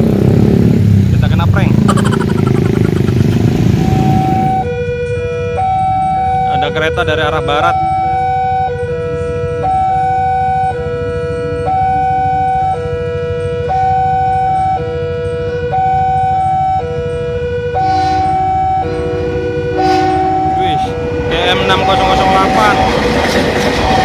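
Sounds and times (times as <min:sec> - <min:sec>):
locomotive passing rushing noise: 0:17.7 - 0:24.0.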